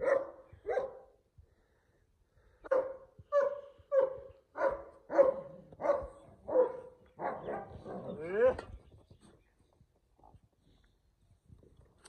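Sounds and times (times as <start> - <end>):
dog barking: 0.0 - 1.2, 2.7 - 8.6.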